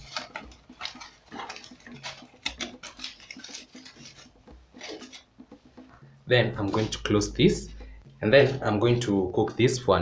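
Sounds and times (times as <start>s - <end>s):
aluminium foil crinkling: 0.0s - 6.0s.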